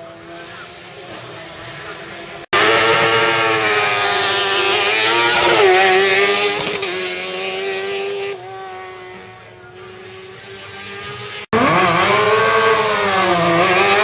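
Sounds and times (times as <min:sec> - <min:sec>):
race car passing at speed: 0:00.0 - 0:14.0.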